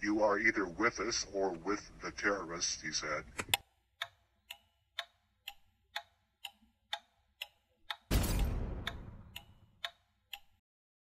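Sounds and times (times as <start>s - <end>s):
clock ticking: 0.0s - 10.6s
loud bang: 8.1s - 9.3s.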